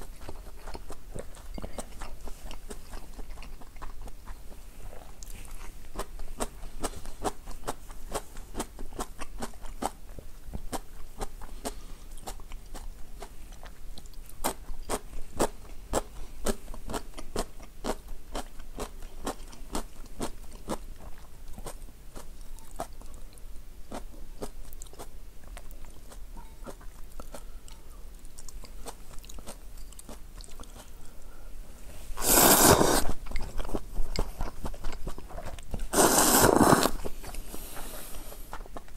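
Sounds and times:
crunchy chewing: 0:00.0 - 0:31.3, 0:32.1 - 0:38.9
slurping noodles: 0:32.1 - 0:33.2, 0:35.8 - 0:38.4.

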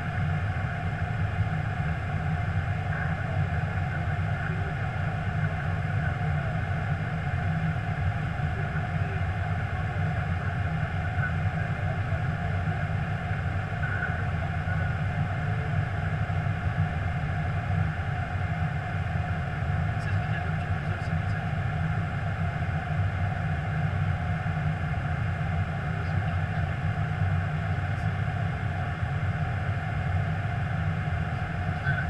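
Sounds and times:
aircraft cockpit drone: 0:00.0 - 0:32.0.

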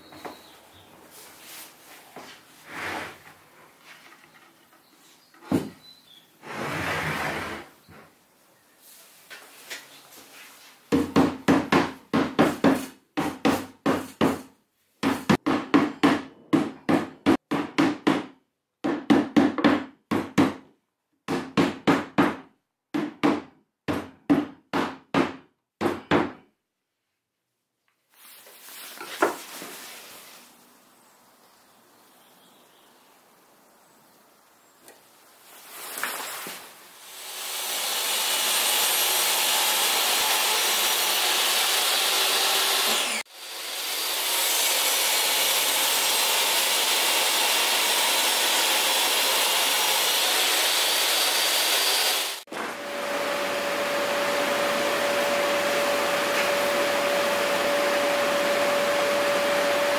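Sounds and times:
plywood scraping: 0:01.1 - 0:05.8, 0:06.4 - 0:08.1.

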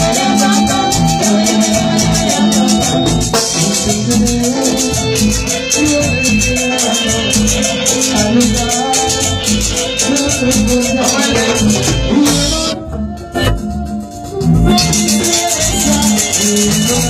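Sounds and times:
latin dance band music: 0:00.0 - 0:17.0.

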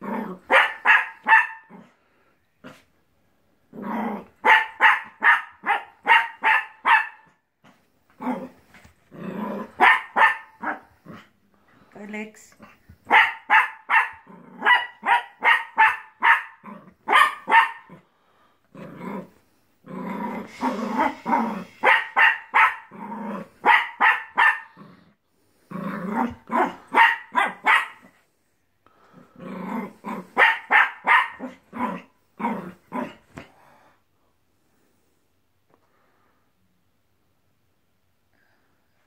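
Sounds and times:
puppy barking: 0:00.5 - 0:01.8, 0:04.4 - 0:07.3, 0:09.8 - 0:10.9, 0:13.0 - 0:18.0, 0:21.8 - 0:22.9, 0:23.6 - 0:24.8, 0:26.5 - 0:28.1, 0:30.4 - 0:32.0
dog growling: 0:08.2 - 0:09.8, 0:14.2 - 0:14.7, 0:18.7 - 0:22.2, 0:22.8 - 0:23.7, 0:24.6 - 0:26.9, 0:29.0 - 0:30.4.

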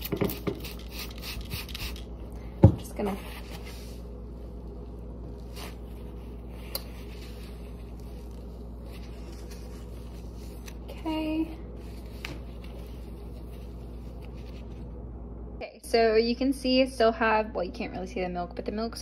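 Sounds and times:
steady room hum: 0:00.0 - 0:19.0
paper napkin rubbing on tiles: 0:05.3 - 0:14.9.

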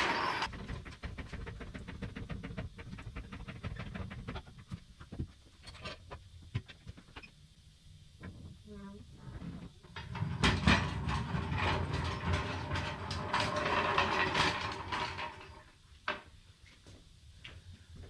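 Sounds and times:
floor jack ratcheting: 0:00.0 - 0:00.6, 0:09.9 - 0:15.7.

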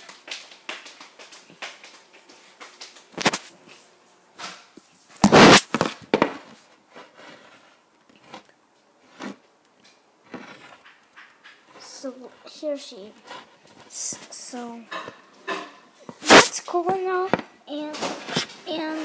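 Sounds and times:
knocks and rubbing on microphone: 0:04.8 - 0:06.5.

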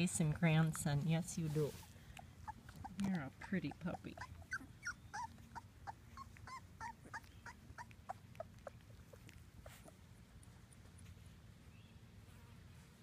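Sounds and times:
puppies whimpering: 0:02.3 - 0:10.0.

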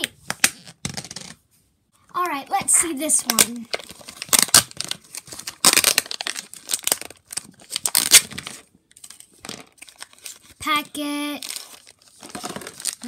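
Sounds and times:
plastic packet crinkling and tearing: 0:03.1 - 0:13.0.

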